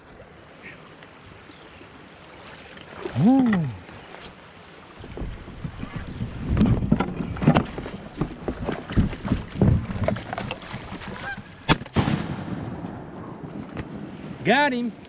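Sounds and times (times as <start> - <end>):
shotgun blast: 11.7 - 13.2.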